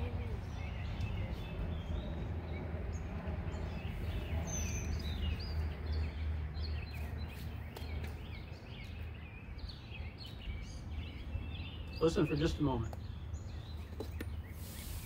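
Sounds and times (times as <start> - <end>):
steady low rumble: 0.0 - 6.6
birds chirping and singing: 0.0 - 15.0.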